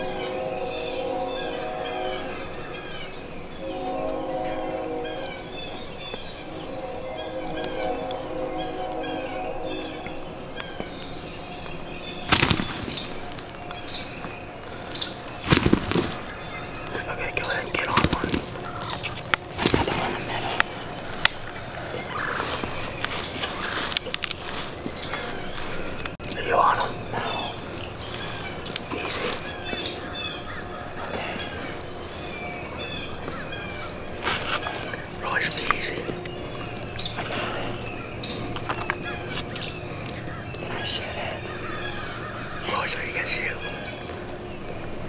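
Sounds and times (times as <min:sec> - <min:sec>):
songbirds chirping: 0:00.0 - 0:45.0
rustling or flapping: 0:12.2 - 0:13.7, 0:14.6 - 0:26.4.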